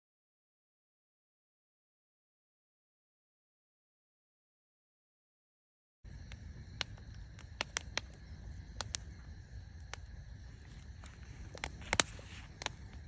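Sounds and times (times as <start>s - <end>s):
insects chorus: 6.1s - 13.0s
wood fire crackling and popping: 6.1s - 13.0s.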